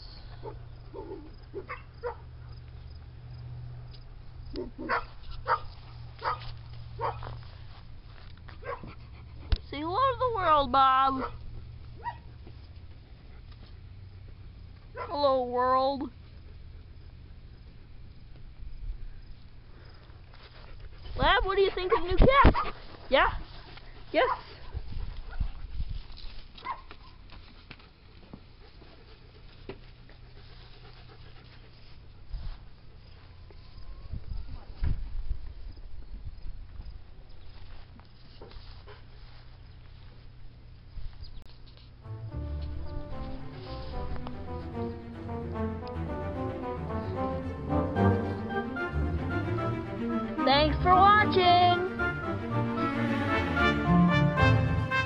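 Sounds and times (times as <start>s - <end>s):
rustling in grass: 5.0s - 8.6s, 22.3s - 33.8s, 37.4s - 40.5s.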